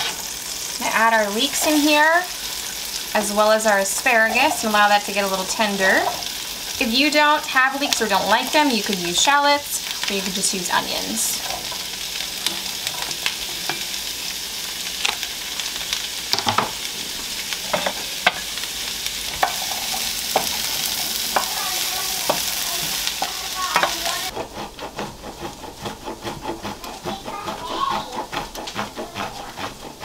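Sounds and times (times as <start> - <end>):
vegetables sizzling in butter: 0.0 - 30.0
cheese grated on metal grater: 0.8 - 13.8, 19.4 - 30.0
wooden spoon knocking against pan: 23.2 - 24.0.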